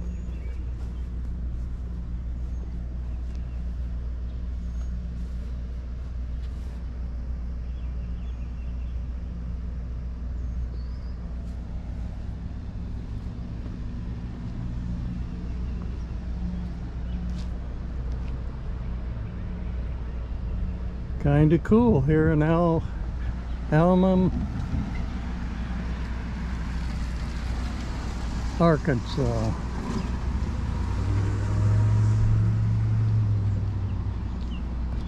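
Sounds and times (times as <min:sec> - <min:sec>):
vehicle engine idling: 0:00.0 - 0:35.0.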